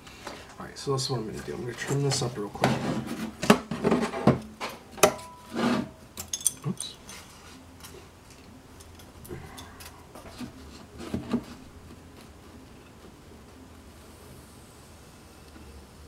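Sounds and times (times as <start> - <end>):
quiet handling of tools: 6.2 - 13.6.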